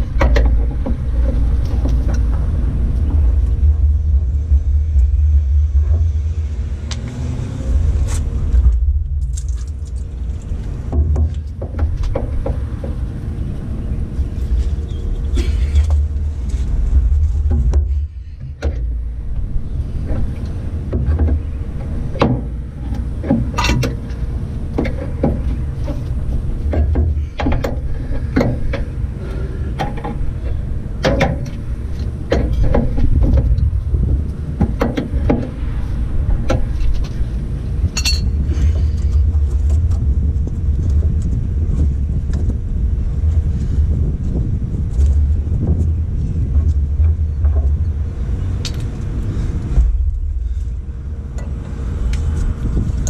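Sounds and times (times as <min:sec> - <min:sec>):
steady low rumble: 0:00.0 - 0:53.0.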